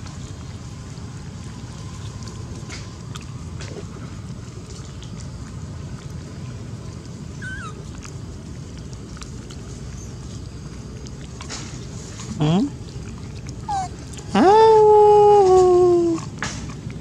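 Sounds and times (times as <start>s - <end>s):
monkey squeak: 7.4s - 7.7s, 13.7s - 13.9s.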